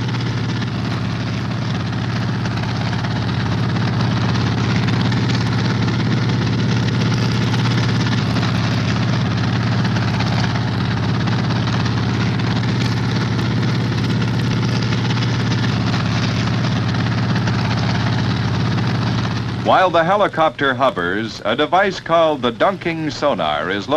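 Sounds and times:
helicopter engine and rotor hum: 0:00.0 - 0:23.9.

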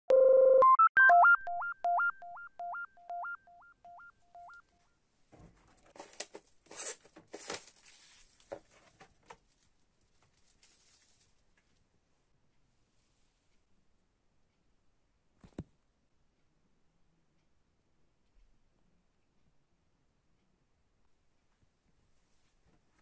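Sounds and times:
synthesizer jingle beeps: 0:00.1 - 0:04.6
plastic wrap crinkling: 0:05.9 - 0:08.8, 0:09.4 - 0:11.5.

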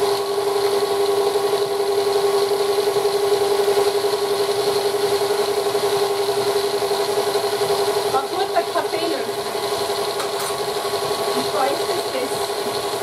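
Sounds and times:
stand mixer motor hum: 0:00.0 - 0:13.0.

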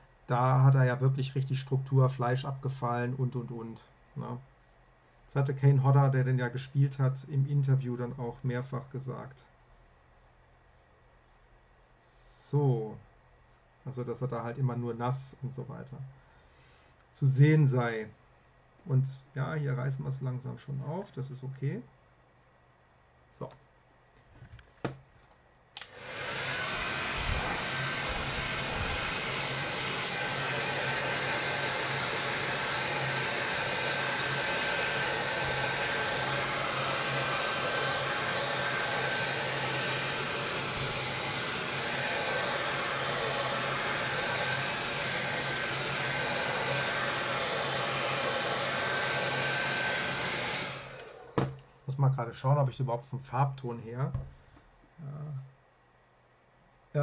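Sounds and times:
hair dryer blowing: 0:25.8 - 0:51.7.

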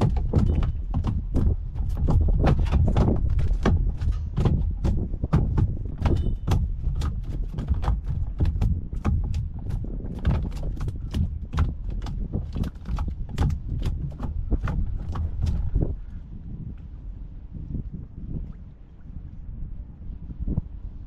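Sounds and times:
rhythmic knocking: 0:00.0 - 0:15.7
steady low rumble: 0:00.0 - 0:21.0.

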